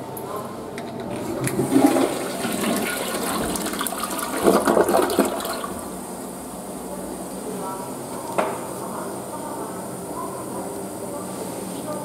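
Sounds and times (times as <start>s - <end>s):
toilet flushing: 0.8s - 6.4s.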